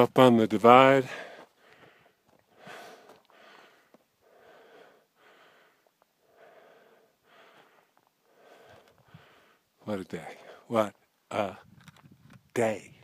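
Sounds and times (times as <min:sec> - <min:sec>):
person breathing hard: 0:01.1 - 0:09.8.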